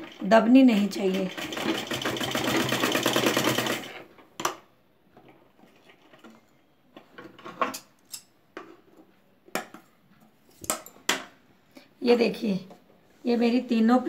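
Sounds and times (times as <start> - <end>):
sewing machine running fast: 1.0 - 4.0.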